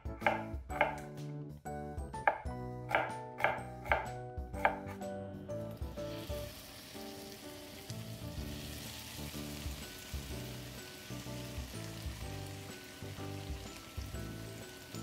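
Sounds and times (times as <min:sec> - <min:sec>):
knife chopping on wooden board: 0:00.0 - 0:01.2, 0:02.2 - 0:05.0
soft background music: 0:00.0 - 0:15.0
onion sizzling in hot oil: 0:05.7 - 0:15.0.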